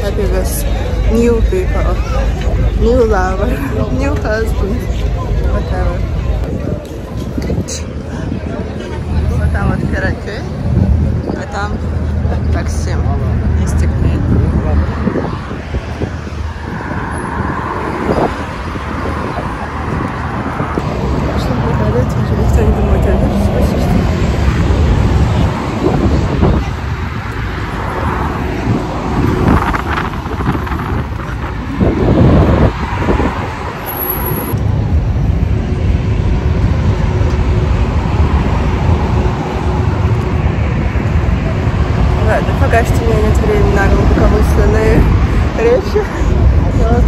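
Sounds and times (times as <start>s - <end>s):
road traffic rumble: 0.0s - 47.0s
wind buffeting microphone: 0.0s - 47.0s.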